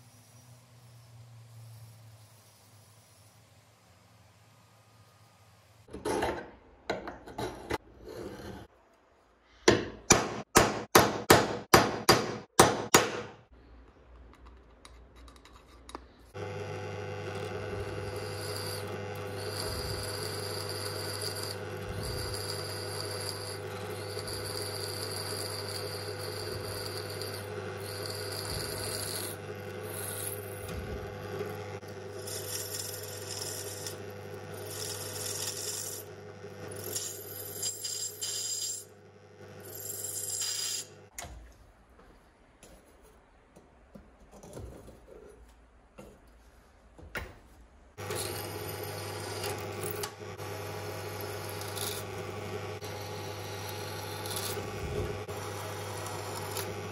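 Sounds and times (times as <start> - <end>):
drill press drilling steel: 16.4 - 41.0, 48.0 - 56.9
metal tool scratching steel: 18.1 - 30.6, 32.2 - 34.0, 34.6 - 36.1, 36.8 - 38.9, 39.6 - 40.9, 51.4 - 52.1, 52.8 - 55.3.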